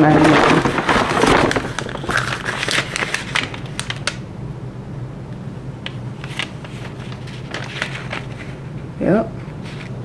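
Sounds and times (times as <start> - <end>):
paper receipt crinkling: 0.0 - 4.2, 6.2 - 8.7.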